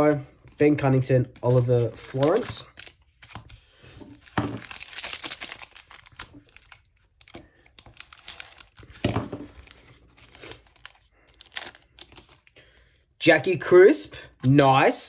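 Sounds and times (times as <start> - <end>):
wrapper crinkling and tearing: 1.4 - 12.6.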